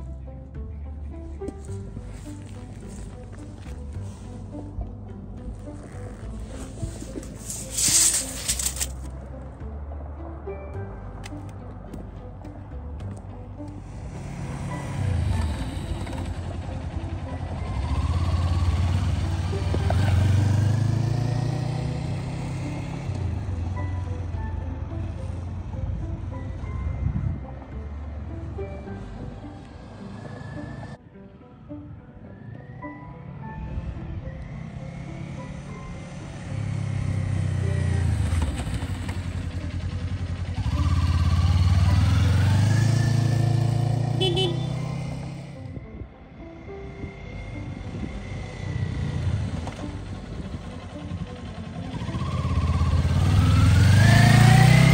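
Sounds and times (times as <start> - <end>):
motorcycle accelerating away: 14.0 - 24.5, 29.5 - 31.0, 34.3 - 45.8, 46.9 - 54.9.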